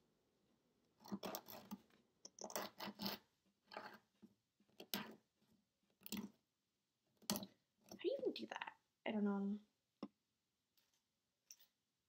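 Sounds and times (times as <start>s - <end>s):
nail file scratching nails: 2.4s - 4.0s.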